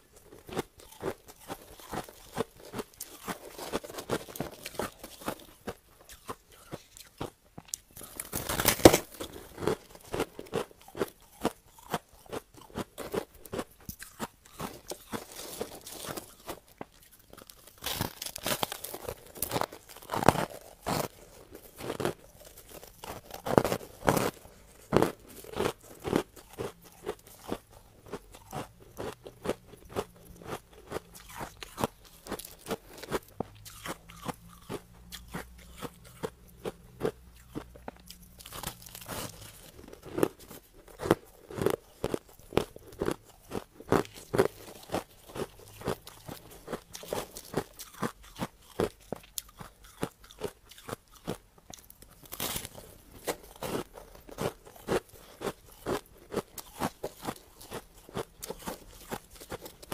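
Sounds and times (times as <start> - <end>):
ice being chewed: 0.0 - 59.9.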